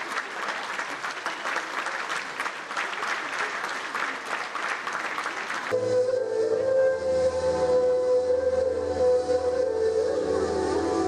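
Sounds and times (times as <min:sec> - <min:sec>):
crowd applauding: 0:00.0 - 0:05.8
music: 0:05.7 - 0:11.0.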